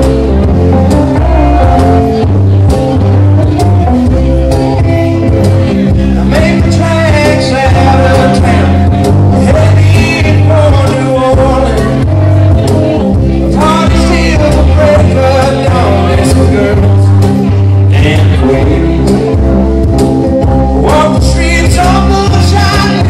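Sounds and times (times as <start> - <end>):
rock band playing live: 0.0 - 23.0
man singing: 4.8 - 19.6, 20.6 - 23.0.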